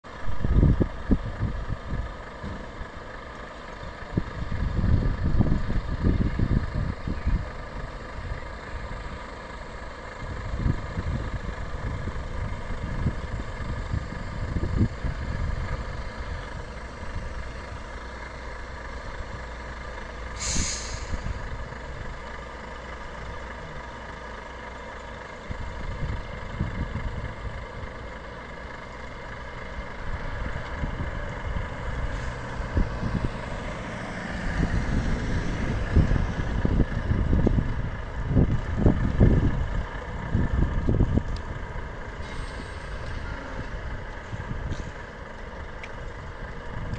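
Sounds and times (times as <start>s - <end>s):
truck diesel engine running: 0.0s - 46.9s
air brakes hiss: 20.3s - 21.4s, 42.2s - 43.6s.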